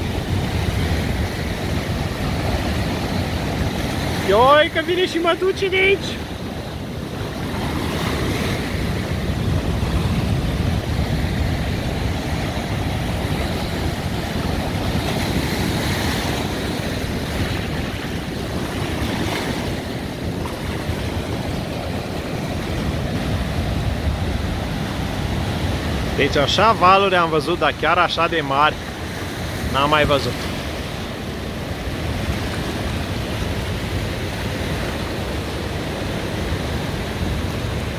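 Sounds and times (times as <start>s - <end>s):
ocean waves breaking on boulders: 0.0s - 37.9s.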